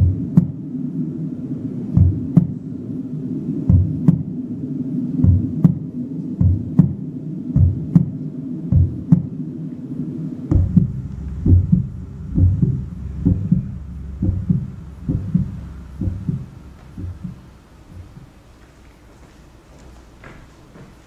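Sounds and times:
heartbeat-like low thumps: 0:00.0 - 0:00.7, 0:01.8 - 0:02.7, 0:03.6 - 0:04.4, 0:05.2 - 0:09.6, 0:10.4 - 0:18.5
steady low hum: 0:00.0 - 0:21.0.

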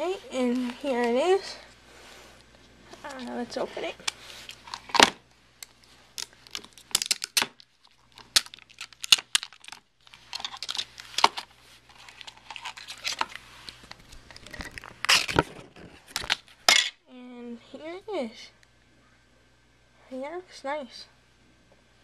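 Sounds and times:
plastic packaging crinkling: 0:03.0 - 0:16.7.

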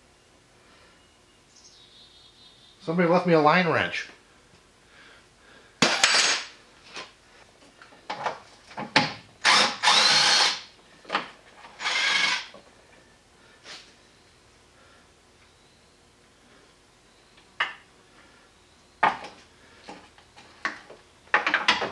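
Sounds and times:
cordless drill spinning: 0:09.4 - 0:10.7, 0:11.8 - 0:12.5.

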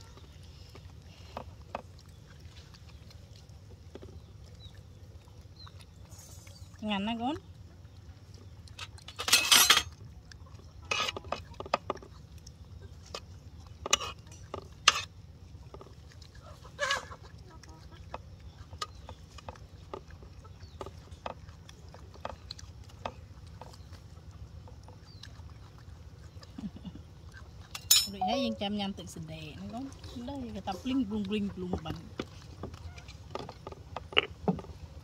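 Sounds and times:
dishes and utensils clinking: 0:09.2 - 0:09.9, 0:27.8 - 0:28.6
brief call: 0:28.1 - 0:28.7.

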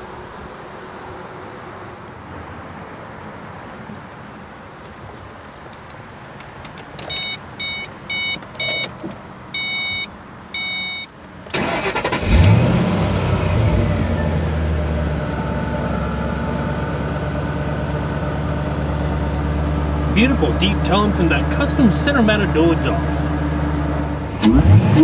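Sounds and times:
dashboard warning chime: 0:07.0 - 0:09.0, 0:09.6 - 0:11.1.

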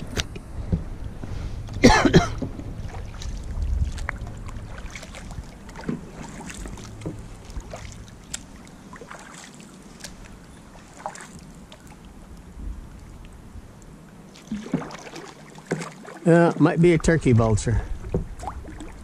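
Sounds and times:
wind rumble on microphone: 0:00.0 - 0:08.9, 0:11.3 - 0:14.1, 0:17.0 - 0:19.0
water lapping at hull: 0:00.0 - 0:19.0
kayak paddle dipping in water: 0:00.1 - 0:19.0
water dripping off paddle blades: 0:01.6 - 0:16.7, 0:17.9 - 0:19.0.

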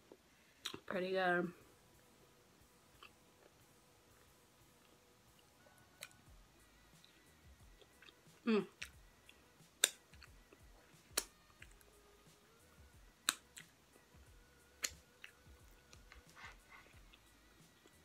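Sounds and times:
wet mouth clicks and lip smacks: 0:09.8 - 0:10.2.

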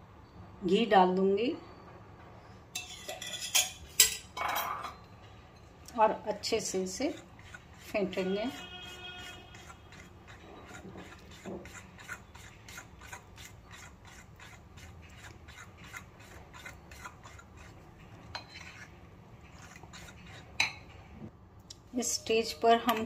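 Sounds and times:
spoon scraping batter in glass bowl: 0:06.4 - 0:21.2.

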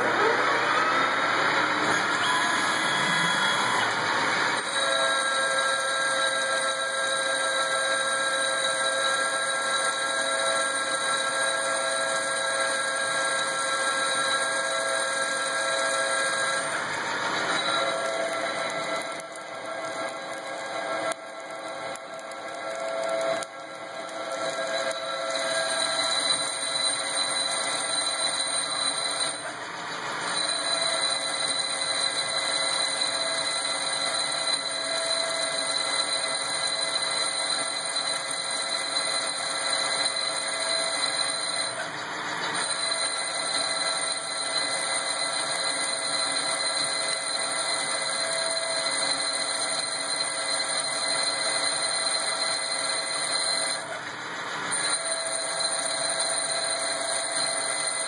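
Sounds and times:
lathe whine: 0:00.0 - 0:58.0.

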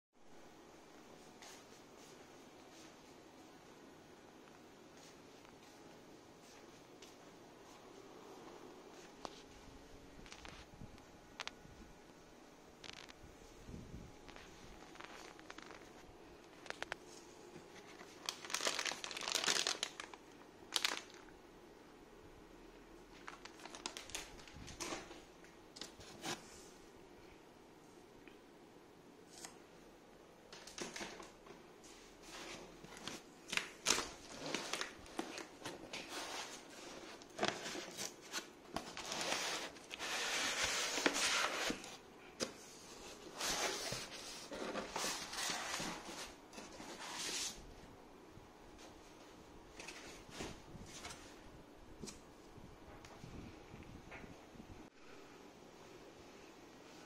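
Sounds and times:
plastic bag crinkling: 0:14.3 - 0:17.0, 0:17.8 - 0:21.3, 0:23.1 - 0:25.2, 0:32.4 - 0:41.8.

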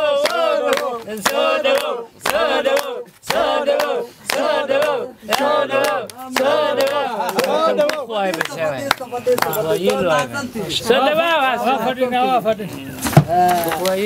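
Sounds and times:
group of voices chanting: 0:00.0 - 0:10.2
hand clapping: 0:00.2 - 0:10.0.

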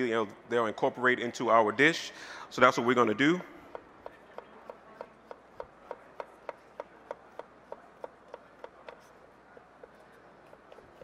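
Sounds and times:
knife chopping on wooden board: 0:03.7 - 0:09.1.

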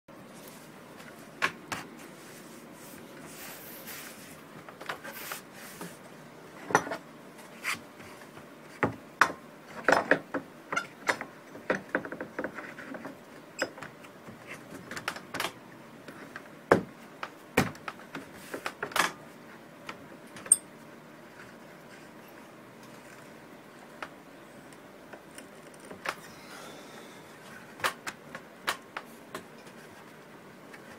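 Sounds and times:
hand tools clicking and clinking: 0:20.4 - 0:20.7.

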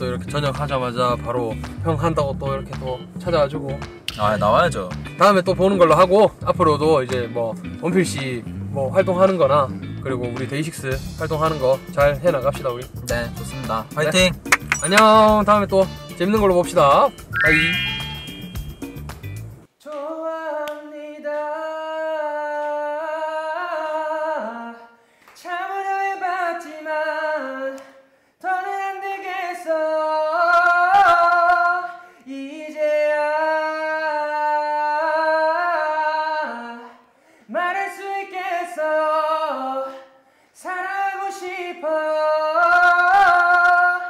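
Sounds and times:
person singing unaccompanied: 0:28.4 - 0:36.9, 0:40.6 - 0:44.0.

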